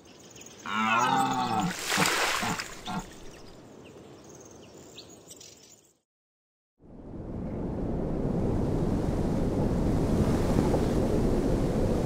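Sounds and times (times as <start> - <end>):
water splash: 1.5 - 3.5.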